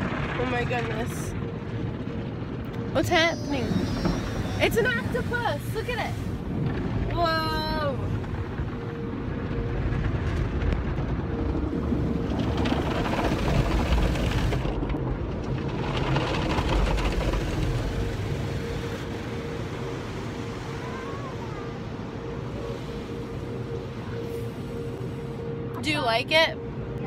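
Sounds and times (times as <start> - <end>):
low rumble and hum: 0.0 - 27.0
water spray on car: 11.8 - 19.2.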